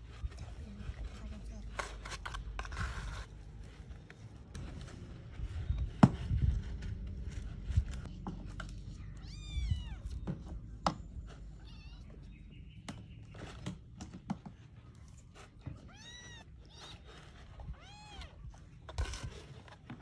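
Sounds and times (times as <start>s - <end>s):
kitten meowing: 9.2s - 10.2s.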